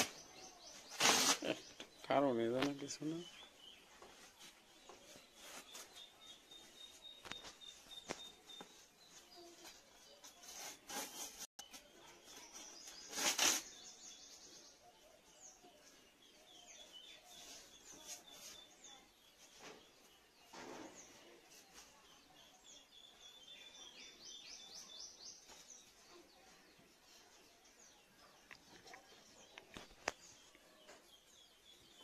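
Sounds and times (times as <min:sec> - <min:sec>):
small birds chirping: 0:00.0 - 0:32.0.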